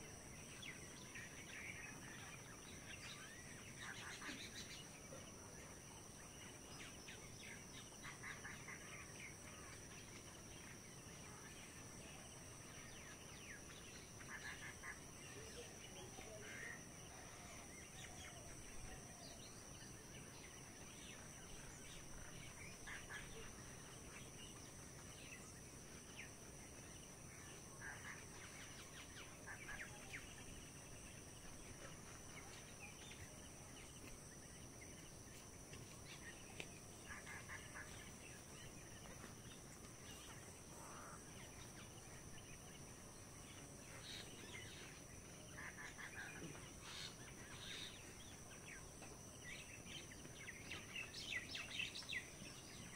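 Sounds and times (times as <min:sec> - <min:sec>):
soft steady hiss: 0:00.0 - 0:52.9
distant bird calls: 0:43.2 - 0:52.9.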